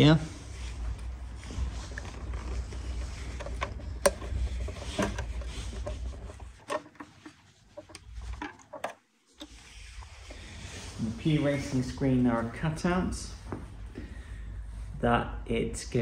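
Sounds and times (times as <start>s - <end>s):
rubbing from handling: 0.3s - 8.8s.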